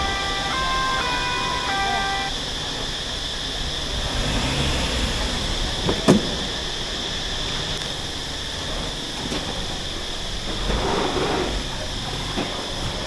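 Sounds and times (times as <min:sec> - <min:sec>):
car engine rumble and hiss: 0:00.0 - 0:13.0
sharp clunk: 0:05.9 - 0:06.4.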